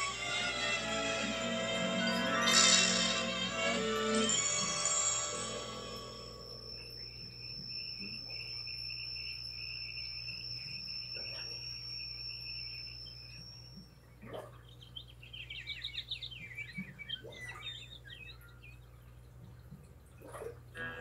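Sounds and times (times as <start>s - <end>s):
high cricket-like trill: 0.0s - 14.0s
wavering low chirring: 0.0s - 19.1s
twittering bird chirps: 6.2s - 19.7s.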